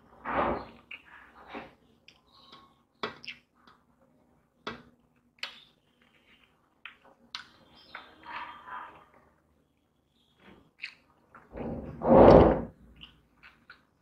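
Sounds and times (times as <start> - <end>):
wet chewing: 10.8 - 11.5, 12.9 - 14.0.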